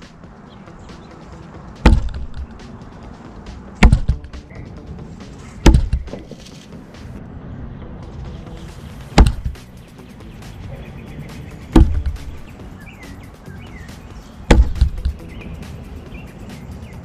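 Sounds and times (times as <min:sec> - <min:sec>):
knives striking wooden target: 0:01.8 - 0:02.6, 0:03.8 - 0:04.4, 0:05.6 - 0:06.6, 0:09.2 - 0:09.6, 0:11.7 - 0:12.4, 0:14.5 - 0:15.2.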